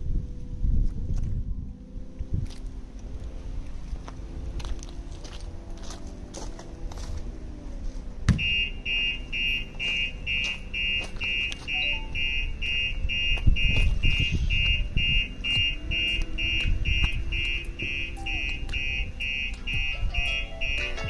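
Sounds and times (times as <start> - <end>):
car alarm beeping: 8.2 - 21.0.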